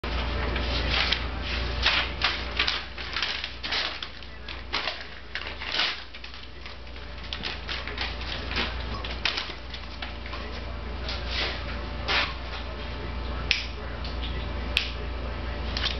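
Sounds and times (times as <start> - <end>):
paper crinkling and ripping: 0.1 - 12.7.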